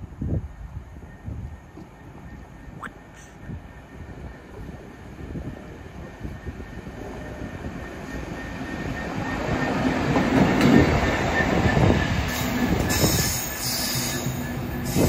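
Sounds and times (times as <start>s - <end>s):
train wheels squealing: 6.3s - 15.0s.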